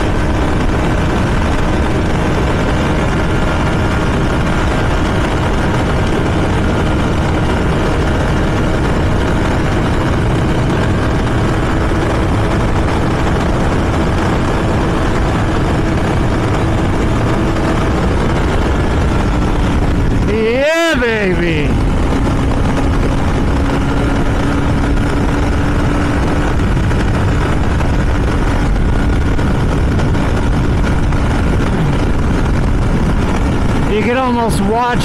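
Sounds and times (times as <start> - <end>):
heavy wind rush: 0.0 - 35.0
motorcycle engine cruising: 0.0 - 35.0.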